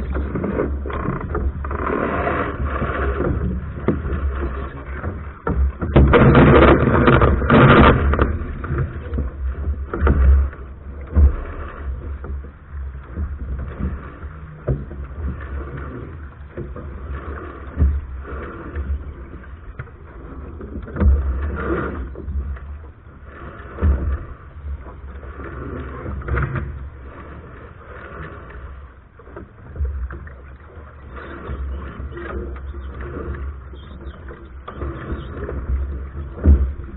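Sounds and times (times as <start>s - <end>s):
wind buffeting microphone: 0.0s - 22.6s
rustling and knocks of sails: 0.0s - 36.9s
water washing along hull: 0.0s - 36.9s.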